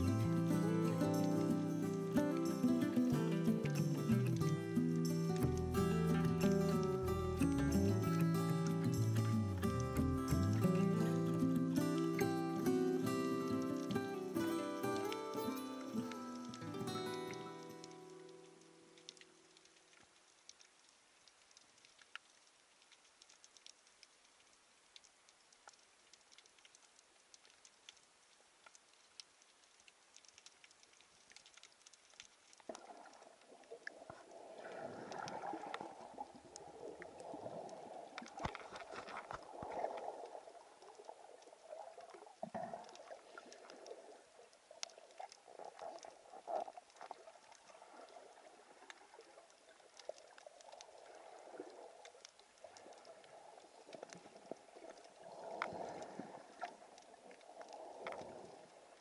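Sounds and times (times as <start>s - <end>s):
rushing bubbling water: 0.0s - 23.6s, 29.8s - 59.0s
faint crackling clicks underwater: 0.0s - 59.0s.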